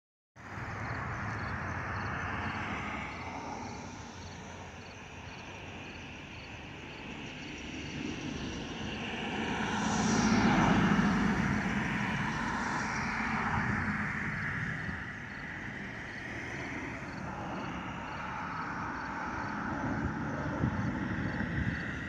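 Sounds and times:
jet engine rumble and hiss: 0.4 - 22.0
falling engine whine: 7.6 - 22.0.

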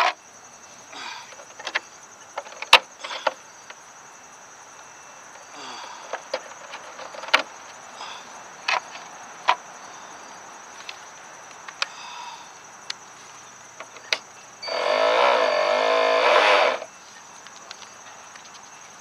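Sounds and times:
electric motor whine: 14.6 - 16.9.

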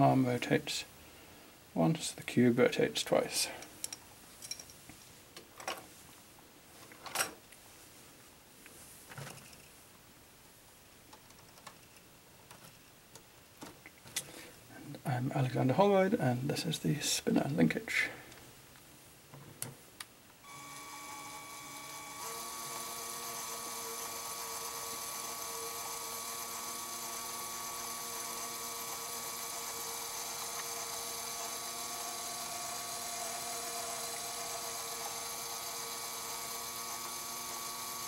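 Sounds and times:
electric motor whining: 20.4 - 38.0.

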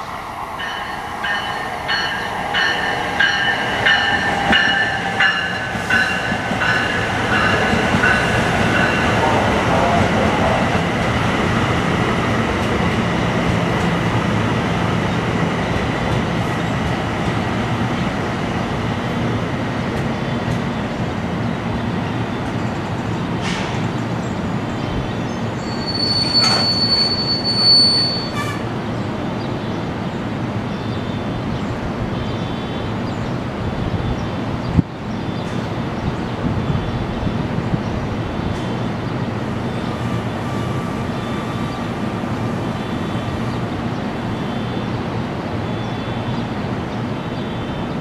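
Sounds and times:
train rumbling over rails: 0.0 - 48.0
high wheel squeal: 25.6 - 28.6.

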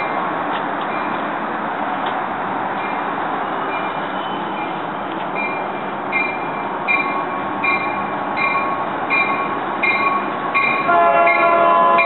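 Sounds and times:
train running noise: 0.0 - 12.0
train warning bell ringing: 2.8 - 12.0.

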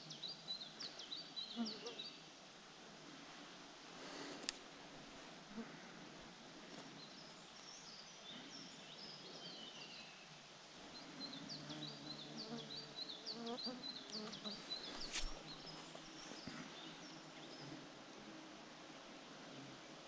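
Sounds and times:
small birds chirping: 6.8 - 17.9
insect buzzing: 11.6 - 15.9.

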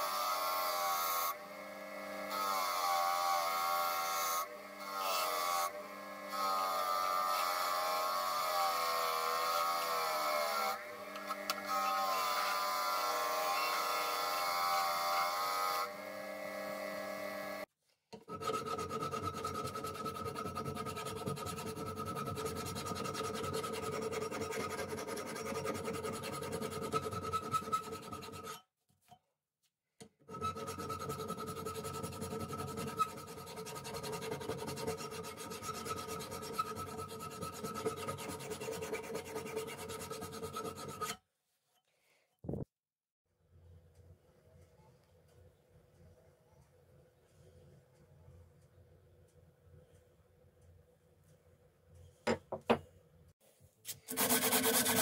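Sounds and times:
file scraping steel blade: 18.3 - 28.7, 30.3 - 41.2, 53.9 - 55.0.

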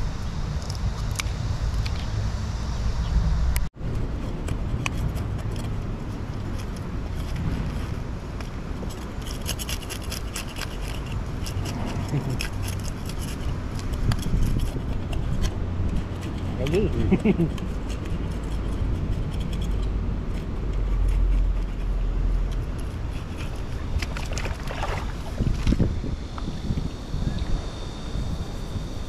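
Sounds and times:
knife scraping fish scales: 8.8 - 19.9
low rumble: 11.0 - 16.2.

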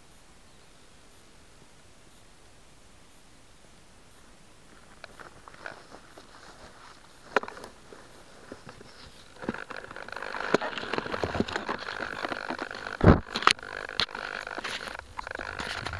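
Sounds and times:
dry grass rustling and crackling: 4.1 - 15.9
sharp clicks: 9.3 - 15.9.

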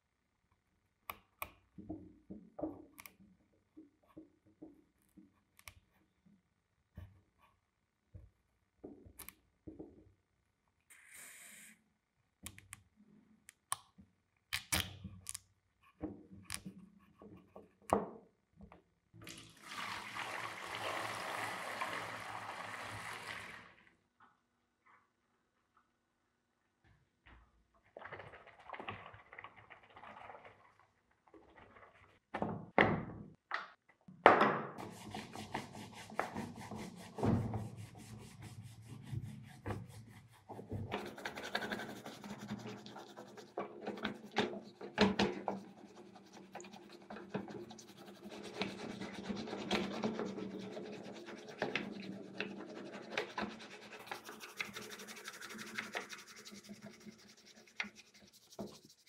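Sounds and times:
sponge scrubbing in soapy water: 34.8 - 59.0.

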